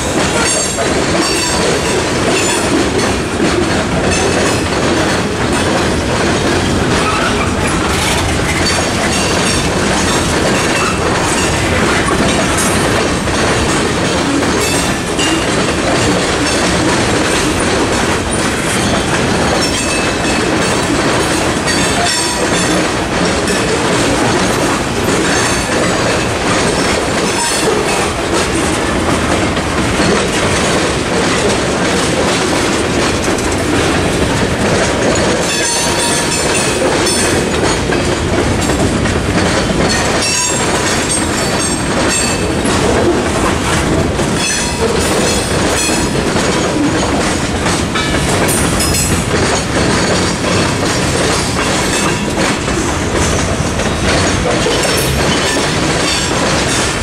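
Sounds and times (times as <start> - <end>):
steel wheels clattering over rail joints: 0.0 - 57.0
train wheel squeal: 7.0 - 12.8, 26.7 - 28.1, 35.4 - 37.4, 39.9 - 42.8.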